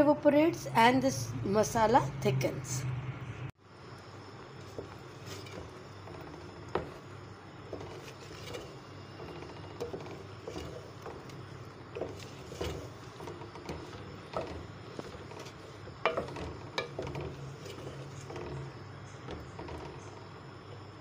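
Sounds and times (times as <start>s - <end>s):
wooden spoon scraping metal pot: 4.6s - 20.6s.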